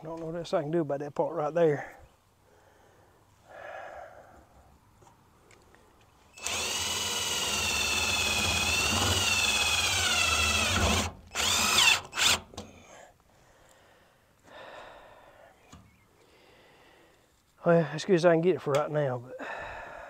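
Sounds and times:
power drill whining: 6.4 - 12.7.

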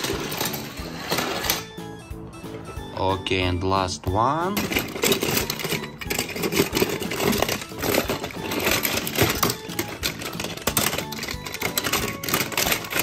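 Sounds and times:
toy cars clattering and clinking: 0.0 - 1.7, 4.5 - 13.0.

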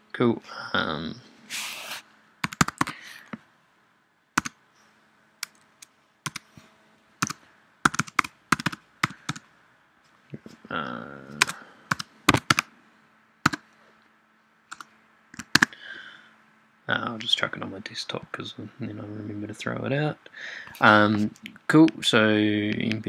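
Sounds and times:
keyboard key clicks: 11.4 - 12.7.

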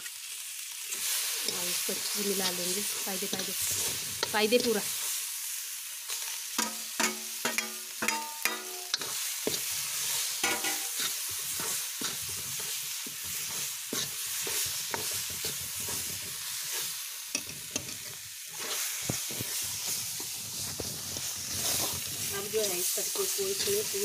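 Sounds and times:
greens sizzling in oil: 0.0 - 24.0
ladle scraping a pan: 6.6 - 24.0.

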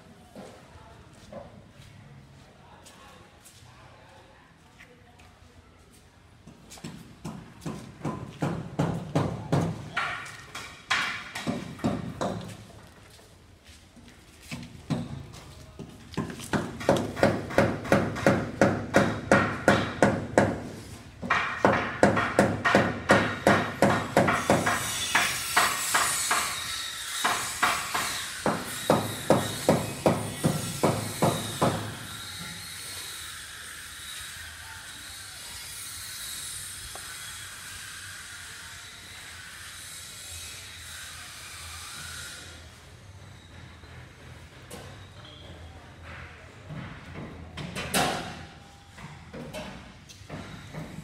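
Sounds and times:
hammering: 6.8 - 12.5, 16.2 - 32.1.

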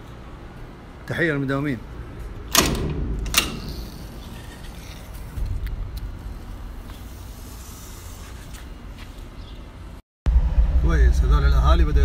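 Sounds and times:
door latch click: 2.5 - 4.2
low rumble: 2.8 - 7.8, 10.2 - 12.0.

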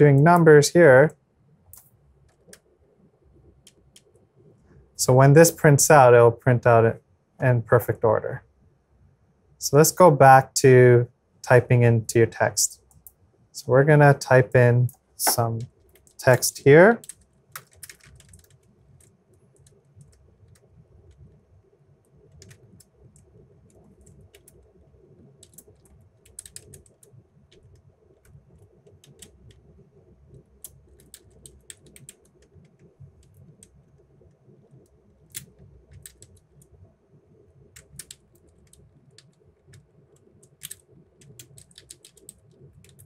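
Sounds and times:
low room hum: 0.0 - 43.0
computer keyboard typing: 17.0 - 21.2, 22.3 - 24.6, 25.4 - 27.8, 28.6 - 29.6, 30.6 - 33.7, 35.3 - 36.6, 37.7 - 43.0.

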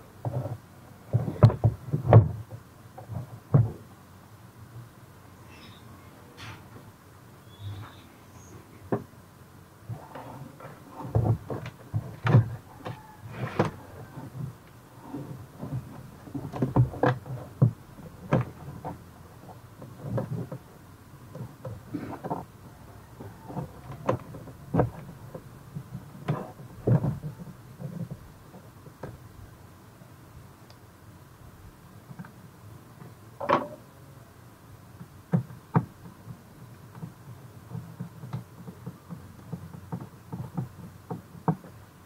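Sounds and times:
knocks clicks and scrapes of handling: 0.2 - 3.8, 9.9 - 20.7, 21.3 - 29.2, 35.0 - 41.9.

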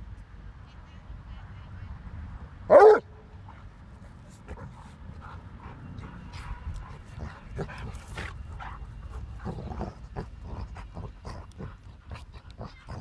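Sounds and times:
dogs vocalizing while playing: 4.1 - 13.0.

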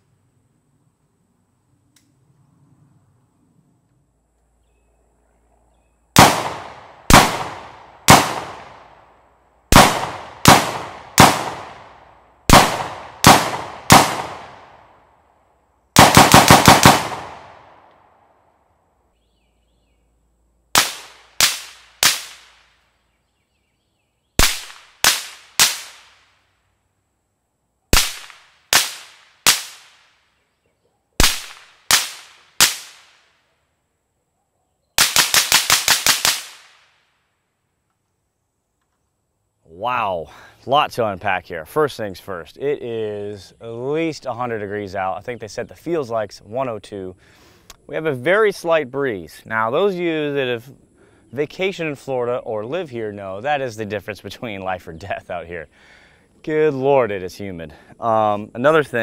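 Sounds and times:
suppressed rifle shots: 6.2 - 8.9, 9.7 - 14.7, 16.0 - 17.8, 20.7 - 22.7, 24.4 - 26.3, 27.9 - 30.1, 31.2 - 33.2
rifle shots echoing: 6.2 - 9.1, 9.7 - 15.0, 16.0 - 17.9, 20.7 - 22.8, 24.4 - 26.3, 27.9 - 30.2, 31.2 - 33.2, 35.0 - 37.0.

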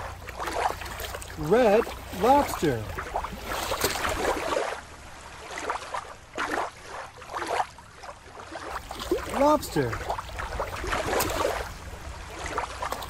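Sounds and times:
water lapping at shoreline: 0.0 - 13.0.

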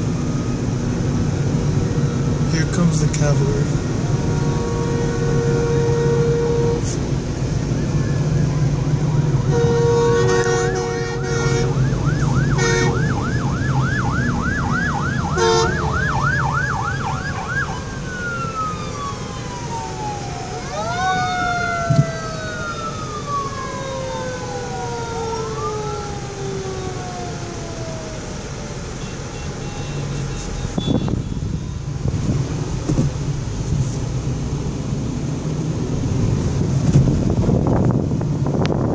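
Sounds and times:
wailing sirens: 0.0 - 29.0
car road noise: 0.0 - 38.9
vehicle horn blasts: 4.2 - 7.0, 9.5 - 11.7, 12.6 - 13.0, 15.4 - 15.9, 29.0 - 31.7
fast yelp siren: 7.6 - 28.4
wind noise: 30.7 - 34.1, 35.7 - 38.9.

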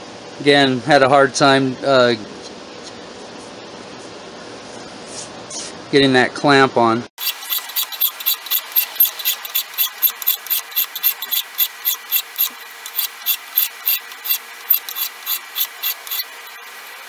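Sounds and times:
file scraping brass: 7.2 - 17.0.

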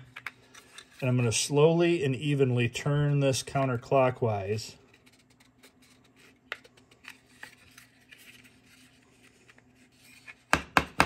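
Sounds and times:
plastic parts clicking and rubbing: 0.0 - 1.0, 4.8 - 10.5.

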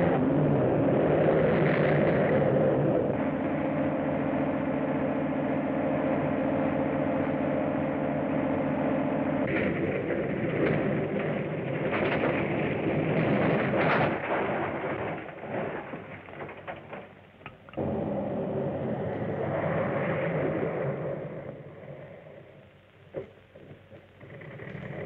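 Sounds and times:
car engine running at speed: 0.0 - 25.0
car tumbling and crashing: 9.4 - 22.5.

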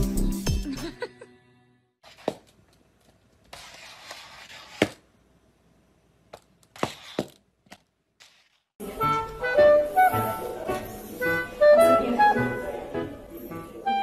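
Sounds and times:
music: 0.0 - 2.0, 8.8 - 14.0.

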